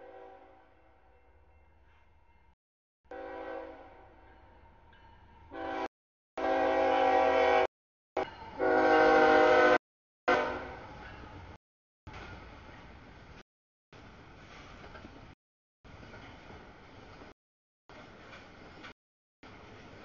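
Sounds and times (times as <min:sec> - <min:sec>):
locomotive air horn blasts: 0:00.0 - 0:00.7, 0:03.1 - 0:04.1, 0:05.5 - 0:07.7, 0:08.5 - 0:10.9.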